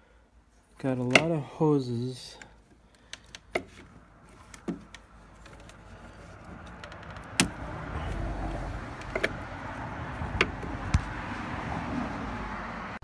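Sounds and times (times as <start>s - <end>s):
rustle of handling parts: 0.5s - 11.2s
clicks and knocks of parts: 2.3s - 7.6s.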